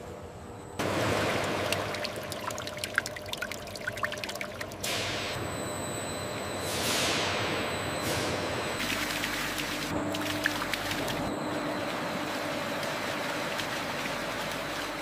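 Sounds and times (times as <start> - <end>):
oil pouring and splashing into a vat: 0.9 - 5.0
faint high whine: 5.0 - 13.6.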